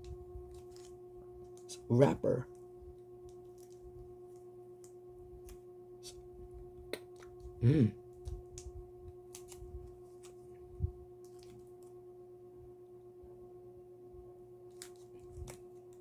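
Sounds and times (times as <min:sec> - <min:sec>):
plastic wrapper crinkling: 0:00.5 - 0:01.7, 0:03.3 - 0:03.9, 0:08.2 - 0:10.4, 0:11.2 - 0:11.8, 0:14.7 - 0:16.0.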